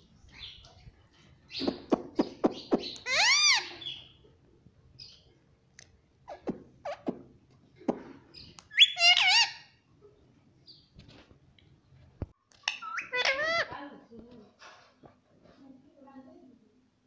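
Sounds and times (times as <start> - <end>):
parakeet calling: 1.5 - 4.2, 8.4 - 9.8, 12.7 - 13.7.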